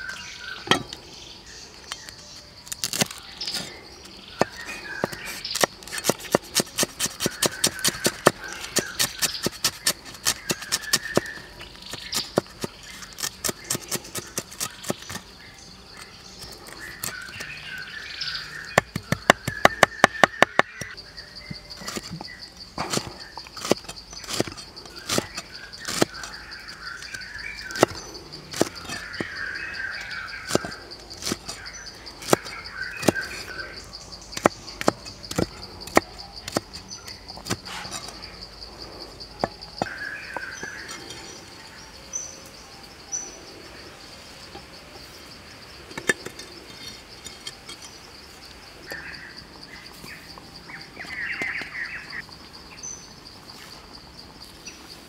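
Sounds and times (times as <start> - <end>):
bird chirps: 0.0 - 53.8
high insect drone: 0.0 - 55.0
cleaver chopping on wooden block: 4.4 - 15.2, 18.7 - 21.0.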